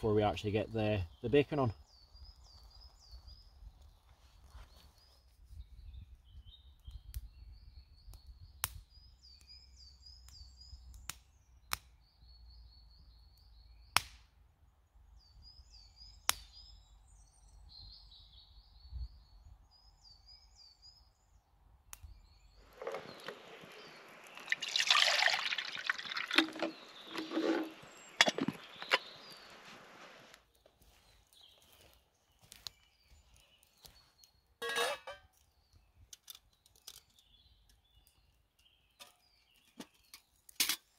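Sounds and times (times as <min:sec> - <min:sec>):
bird singing: 0:00.0 - 0:30.2, 0:30.9 - 0:40.4
wood fire crackling and popping: 0:22.0 - 0:34.0.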